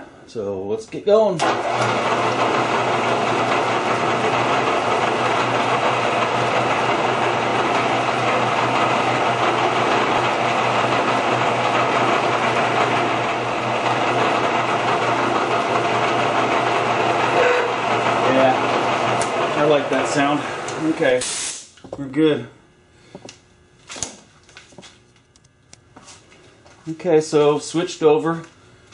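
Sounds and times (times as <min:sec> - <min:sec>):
milling machine spindle running: 0:01.4 - 0:21.2
drill bit cutting metal: 0:01.5 - 0:21.1.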